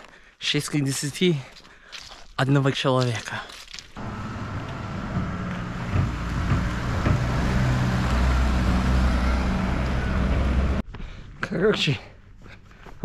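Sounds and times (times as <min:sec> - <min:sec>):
vehicle engine humming: 0:04.0 - 0:10.8.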